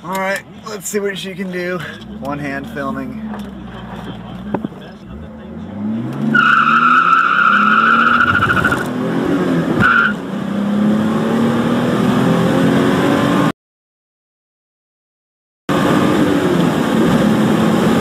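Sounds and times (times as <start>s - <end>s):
car engine accelerating: 1.8s - 13.5s, 15.7s - 18.0s
tyres squealing: 6.3s - 8.8s.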